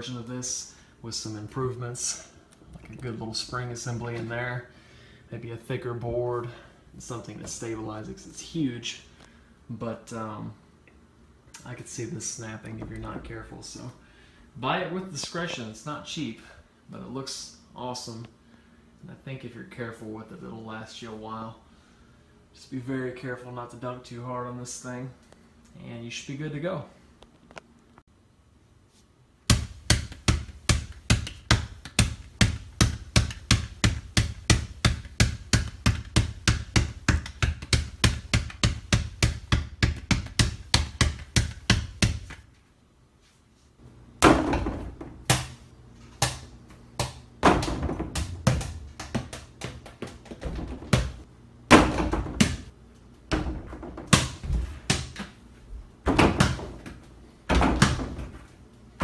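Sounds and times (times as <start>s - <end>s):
ball hitting backboard and rim: 29.5s - 42.4s, 44.2s - 45.6s, 46.2s - 52.7s, 53.3s - 55.3s, 56.0s - 58.4s
basketball dribbled on tile floor: 29.5s - 42.4s, 46.2s - 52.7s.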